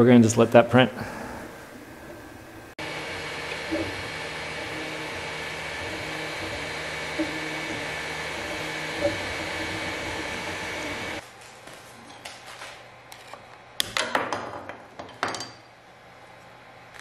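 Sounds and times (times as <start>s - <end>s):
cooling fans whirring: 0.0s - 14.1s
stepper motor tones: 1.3s - 11.2s.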